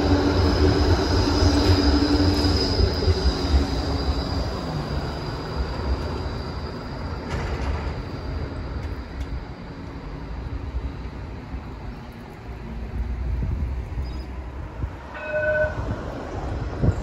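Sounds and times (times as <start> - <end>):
tram rumbling on rails: 0.0 - 17.0
high wheel squeal: 0.6 - 7.4, 15.1 - 16.0.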